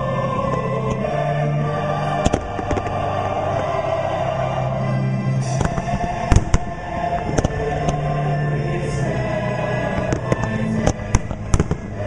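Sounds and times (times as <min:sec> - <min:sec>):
choir with orchestral music: 0:00.0 - 0:12.0
fireworks cracking and popping: 0:02.2 - 0:03.3, 0:05.5 - 0:08.0, 0:10.0 - 0:12.0.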